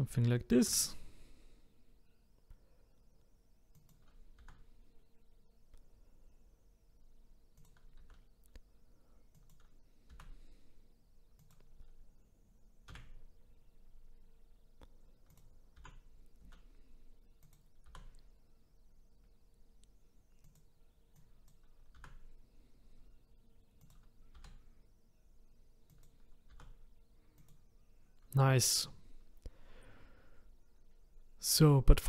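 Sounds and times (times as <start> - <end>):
faint steady hum: 0.0 - 32.0
keyboard and mouse clicks: 3.7 - 4.7, 7.5 - 8.7, 9.3 - 10.4, 11.3 - 12.0, 12.8 - 13.3, 14.8 - 16.7, 17.4 - 18.3, 19.8 - 22.4, 23.8 - 24.7, 25.8 - 27.6.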